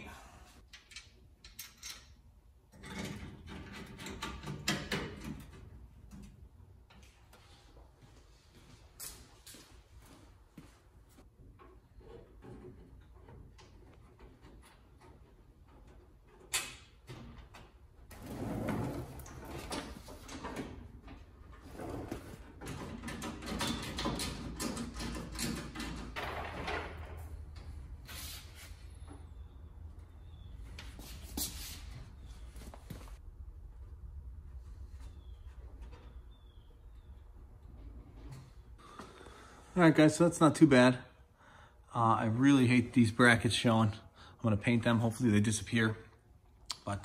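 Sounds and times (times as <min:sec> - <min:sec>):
car parts scraping and knocking: 0:11.2 - 0:29.5
car parts clicking and clattering: 0:19.2 - 0:27.9.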